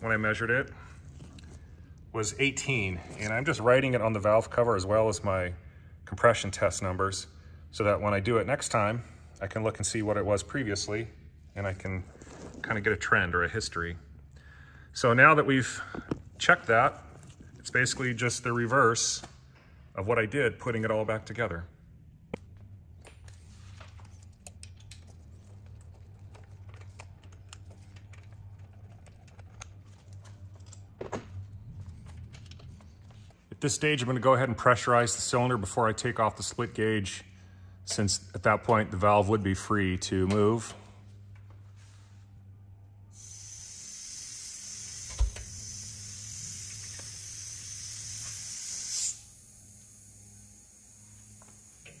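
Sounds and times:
steady low hum: 0.0 - 52.0
compressed air hissing: 43.2 - 49.3.

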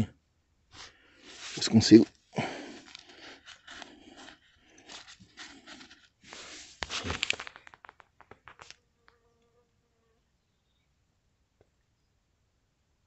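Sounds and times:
scraping and crunching handling noise: 0.8 - 9.2.

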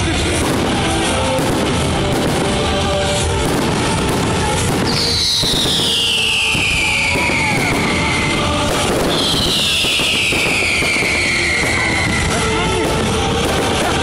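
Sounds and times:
firework bangs and crackle: 0.0 - 14.0
music: 0.0 - 14.0
whistling firework shells: 4.3 - 13.9.

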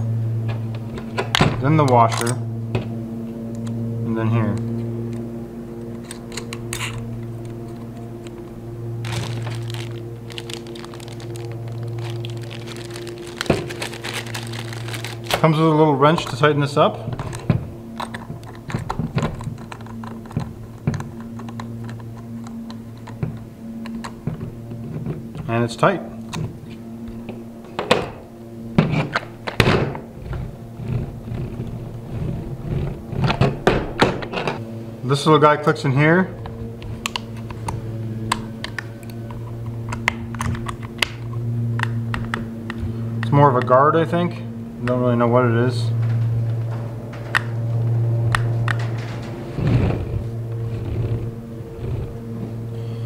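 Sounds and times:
low electrical hum: 0.0 - 53.0
plastic bag crinkling: 9.0 - 15.6.

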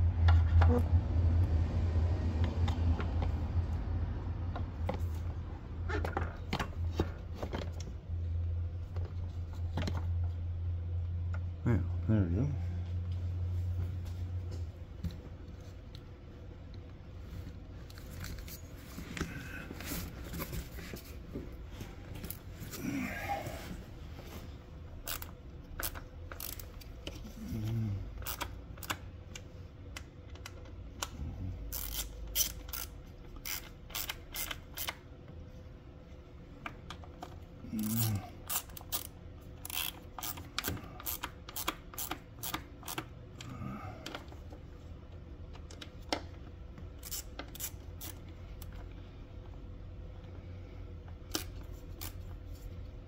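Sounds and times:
hand ratchet clicking: 25.0 - 26.9, 28.2 - 29.0, 31.7 - 35.0, 37.8 - 43.1, 47.0 - 48.7.

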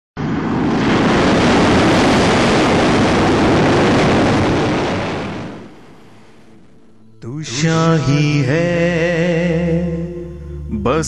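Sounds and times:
jet aircraft rush: 0.2 - 7.1.

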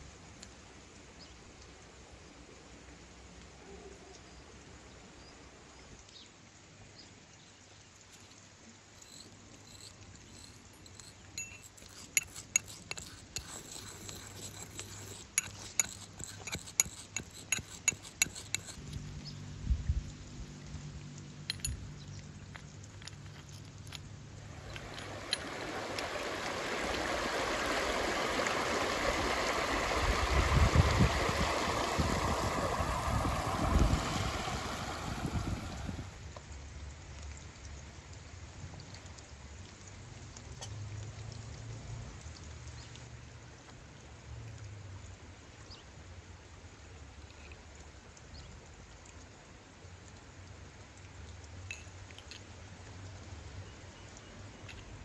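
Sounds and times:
pestle clinking in brass mortar: 9.0 - 18.8
river rushing over rocks: 24.5 - 36.0.

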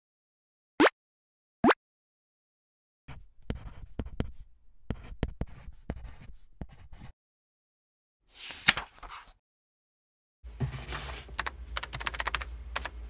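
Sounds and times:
pen writing on paper: 3.1 - 7.2.

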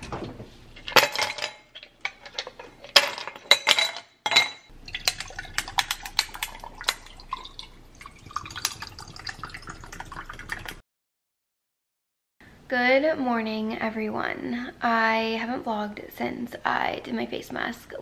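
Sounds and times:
liquid pouring into a glass: 4.7 - 10.8.

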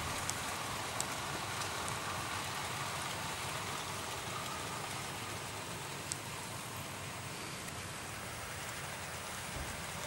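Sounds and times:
faint clicks: 6.0 - 6.3.

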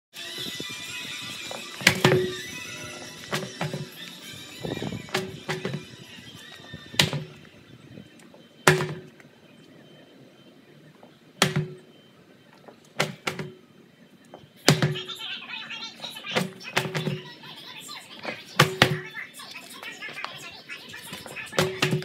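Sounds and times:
tire slamming on concrete: 1.8 - 2.4, 8.7 - 9.1, 11.4 - 11.8.

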